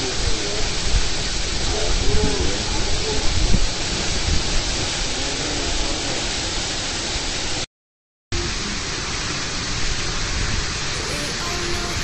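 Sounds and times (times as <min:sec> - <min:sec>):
waterfall rushing: 0:08.4 - 0:12.0.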